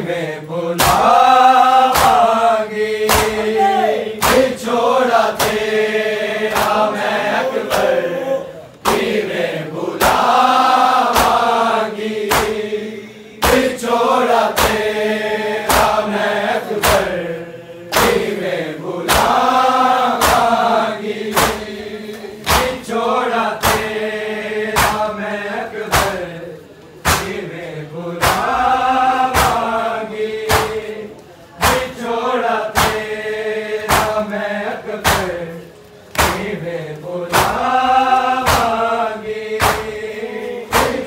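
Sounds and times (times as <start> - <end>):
men chanting a lament: 0.0 - 41.0
hands slapping bare chests: 0.8 - 1.2, 1.8 - 2.4, 3.0 - 3.6, 4.2 - 4.6, 5.3 - 5.7, 6.5 - 6.9, 11.0 - 11.6, 12.2 - 12.6, 13.4 - 13.7, 14.5 - 14.9, 15.6 - 16.0, 16.8 - 17.1, 17.9 - 18.3, 20.1 - 20.6, 21.3 - 21.7, 22.4 - 22.8, 23.6 - 24.0, 24.7 - 25.1, 25.9 - 26.2, 27.0 - 27.5, 28.2 - 28.6, 29.3 - 29.8, 30.4 - 30.9, 31.6 - 32.0, 32.6 - 33.2, 33.8 - 34.3, 35.0 - 35.4, 36.1 - 36.6, 37.3 - 37.7, 38.4 - 38.9, 39.5 - 40.0, 40.7 - 41.0.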